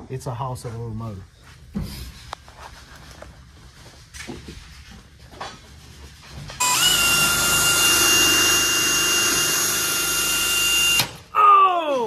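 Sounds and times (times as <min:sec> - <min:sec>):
cordless drill boring through wood: 0:06.6 - 0:11.1.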